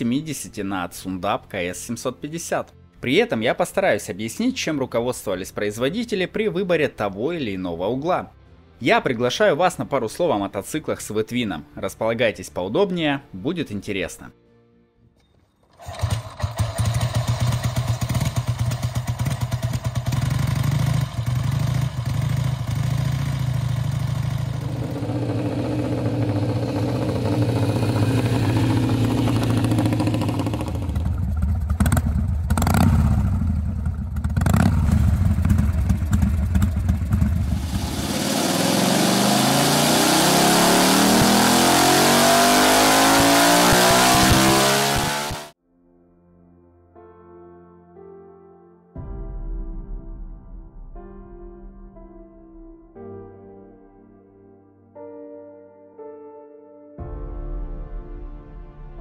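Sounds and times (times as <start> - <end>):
motorcycle engines running: 15.8 - 45.5.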